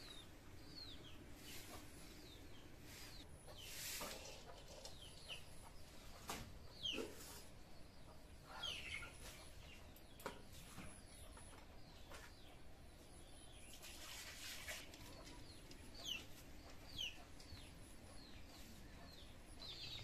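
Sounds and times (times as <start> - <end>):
small birds chirping: 0.0 - 20.0
chicken clucking: 0.8 - 9.9, 14.7 - 20.0.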